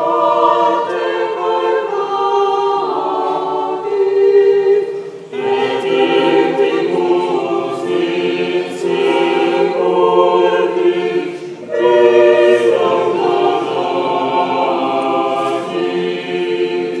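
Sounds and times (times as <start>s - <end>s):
choir singing held chords: 0.0s - 17.0s.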